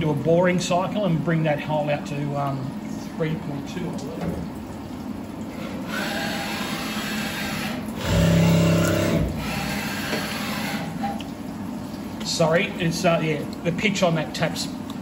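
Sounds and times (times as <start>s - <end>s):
steady machine hum: 0.0s - 15.0s
coolant hissing and splashing: 2.0s - 14.8s
mill machine running: 5.8s - 11.0s.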